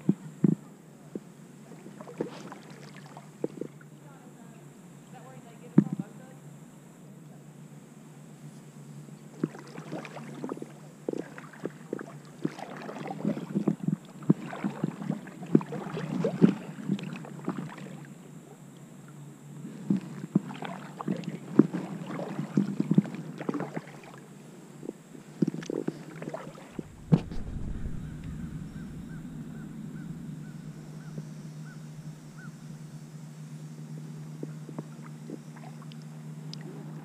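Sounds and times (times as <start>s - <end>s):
kayak paddle splashing: 1.8s - 3.8s, 9.4s - 18.2s, 19.8s - 24.4s, 25.3s - 32.5s.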